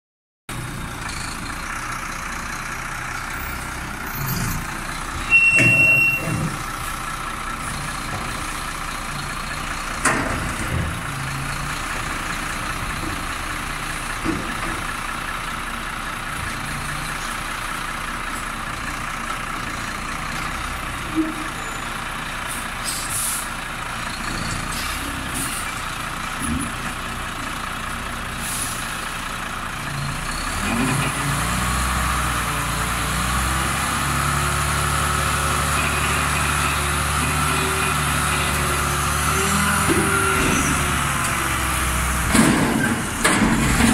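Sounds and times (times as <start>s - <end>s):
diesel truck engine running: 0.5s - 43.9s
air brakes hissing and squealing: 4.0s - 7.0s, 21.1s - 23.6s, 24.2s - 25.8s, 28.3s - 29.0s.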